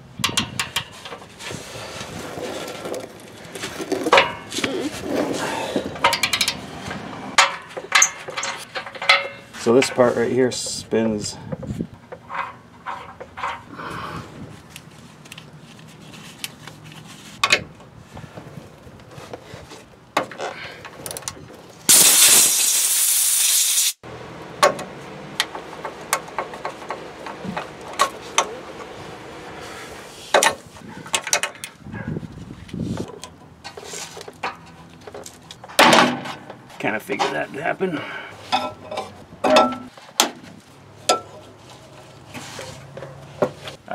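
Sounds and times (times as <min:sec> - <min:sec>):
loud steady hiss: 0:21.9 - 0:24.0.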